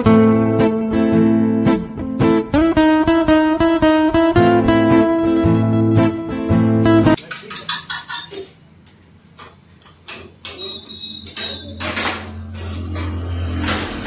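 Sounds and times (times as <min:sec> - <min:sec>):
metal tools clinking and knocking: 0:07.2 - 0:08.6, 0:09.4 - 0:14.0.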